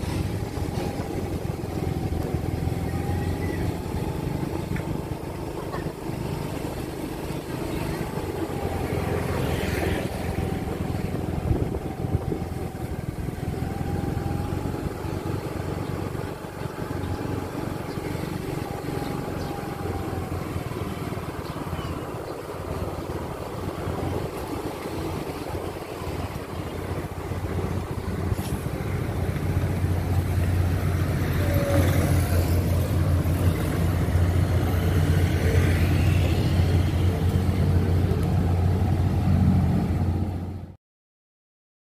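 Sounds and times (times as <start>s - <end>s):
motorcycles passing: 0.0s - 40.7s
cars passing: 0.0s - 40.8s.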